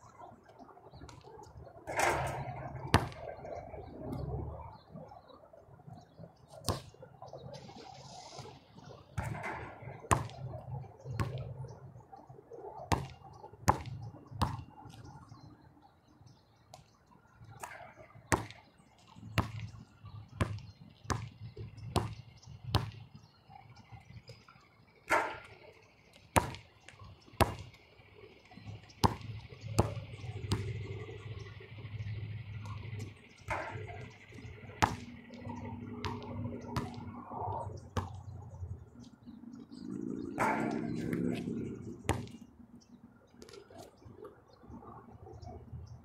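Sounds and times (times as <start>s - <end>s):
basketball bouncing on hard court: 9.2s - 10.5s, 11.2s - 11.5s, 12.9s - 14.7s, 18.3s - 18.6s, 20.4s - 23.0s, 26.4s - 27.8s, 29.0s - 30.8s, 33.0s - 35.2s, 35.8s - 37.2s, 38.0s - 38.2s, 42.1s - 42.4s.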